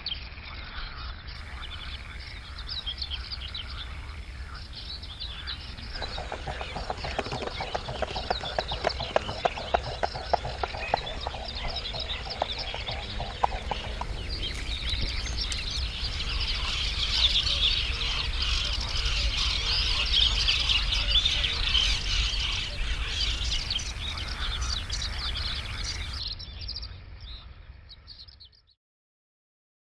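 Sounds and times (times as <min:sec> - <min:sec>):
flock of birds chirping: 0:00.0 - 0:28.8
swans pattering on water: 0:01.4 - 0:26.2
wings slapping: 0:05.3 - 0:17.4.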